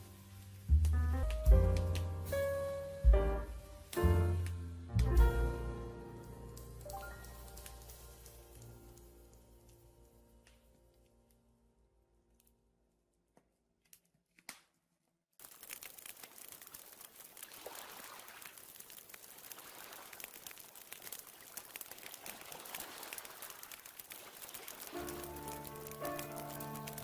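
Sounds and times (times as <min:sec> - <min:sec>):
campfire crackling and popping: 0:00.0 - 0:11.5, 0:15.4 - 0:27.0
soft music: 0:00.0 - 0:11.7, 0:24.9 - 0:27.0.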